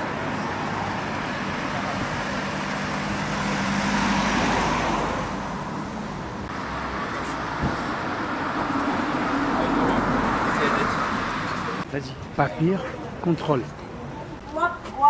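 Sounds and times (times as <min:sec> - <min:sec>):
vehicle engine hum: 0:00.0 - 0:11.9
general traffic noise: 0:00.0 - 0:15.0.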